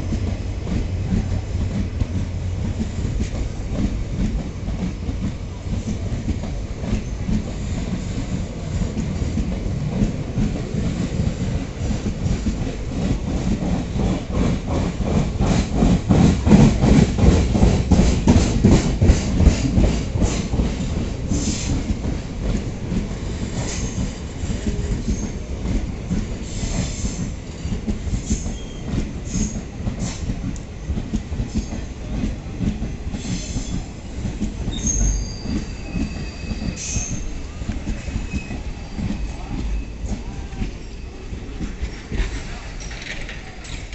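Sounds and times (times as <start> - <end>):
train wheels clattering over rail joints: 0.0 - 43.9
high thin wheel squeals: 34.7 - 37.3.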